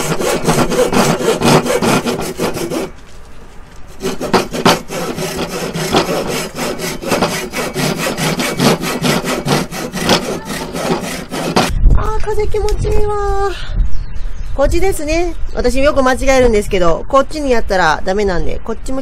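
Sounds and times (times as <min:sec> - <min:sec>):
hand saw cutting wood: 0:00.0 - 0:03.0, 0:03.9 - 0:11.7.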